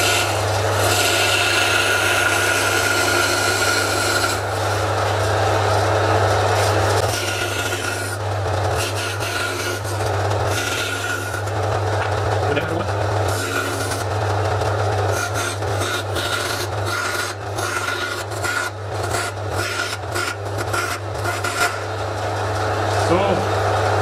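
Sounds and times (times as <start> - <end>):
bandsaw rasping through board: 0.0 - 5.2, 6.6 - 11.5, 12.5 - 14.1, 15.1 - 21.9
bandsaw motor hum: 0.0 - 24.0.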